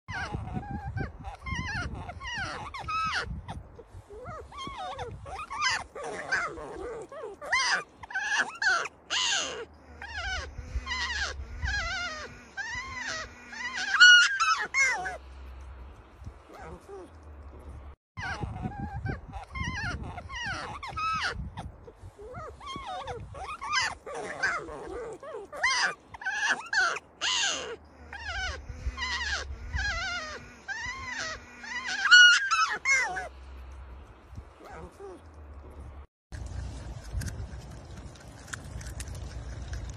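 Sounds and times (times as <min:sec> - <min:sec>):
marmots squealing cries: 0:00.1 - 0:03.4, 0:04.2 - 0:15.2, 0:18.2 - 0:21.5, 0:22.3 - 0:33.3.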